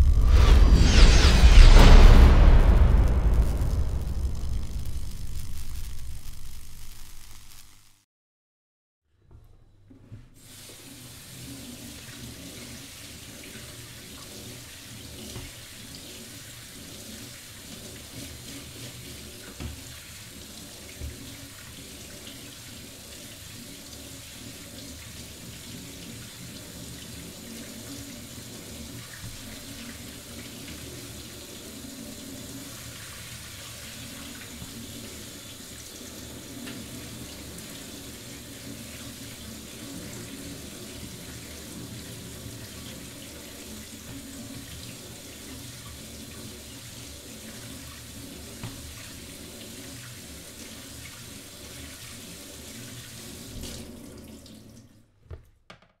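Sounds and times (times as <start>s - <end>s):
tap water splashing through grains: 10.4s - 28.2s, 28.8s - 31.4s, 32.6s - 39.2s, 42.6s - 46.1s, 46.9s - 52.2s
small knocks: 55.3s - 56.0s.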